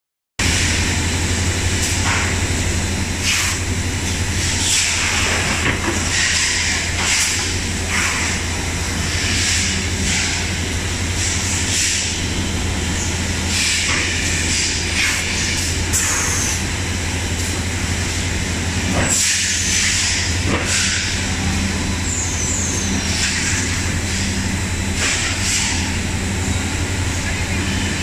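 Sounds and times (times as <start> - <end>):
packaging machine humming: 0.5 - 28.0
pneumatic air hisses: 13.5 - 16.6, 19.1 - 21.2.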